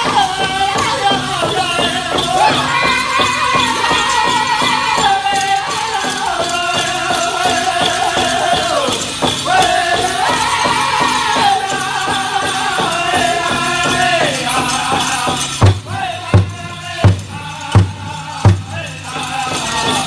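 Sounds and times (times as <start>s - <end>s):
fast steady drumbeat: 0.0s - 20.0s
group singing in high voices: 0.0s - 20.0s
jingling bells: 0.0s - 20.0s
single heavy drumbeats: 15.3s - 19.0s.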